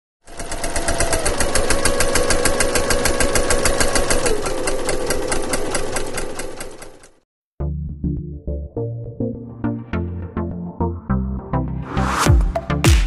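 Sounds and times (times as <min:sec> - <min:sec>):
rapid mechanical ticking: 0:00.2 - 0:07.2.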